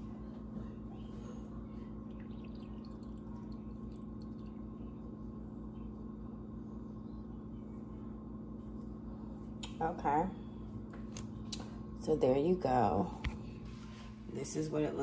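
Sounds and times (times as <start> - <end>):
low electrical hum: 0.0 - 15.0
tea trickling into a mug: 2.1 - 5.2.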